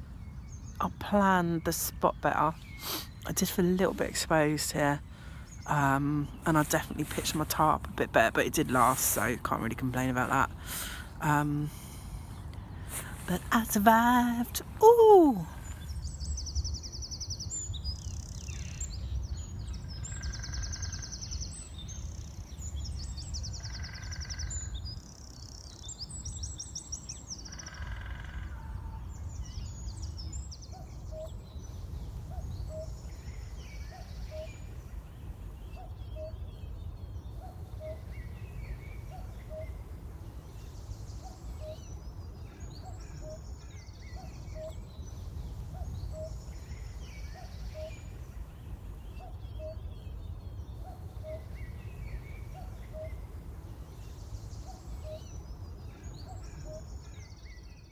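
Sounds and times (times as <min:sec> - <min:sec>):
songbirds trilling: 0:00.0 - 0:57.9
cuckoos calling: 0:00.7 - 0:57.9.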